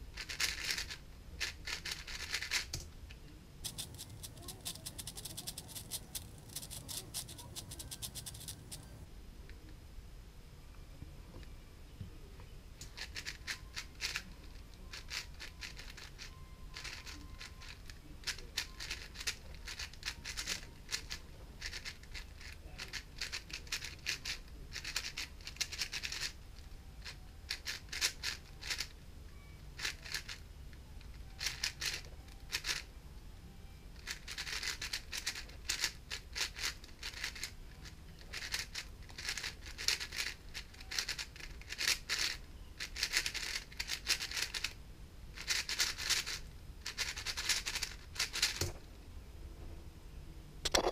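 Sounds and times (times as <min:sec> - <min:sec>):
plastic puzzle cube clicking: 0:00.2 - 0:02.9, 0:03.6 - 0:09.0, 0:12.8 - 0:14.3, 0:14.9 - 0:26.3, 0:27.0 - 0:28.9, 0:29.8 - 0:30.4, 0:31.4 - 0:32.8, 0:34.0 - 0:44.8, 0:45.4 - 0:48.7.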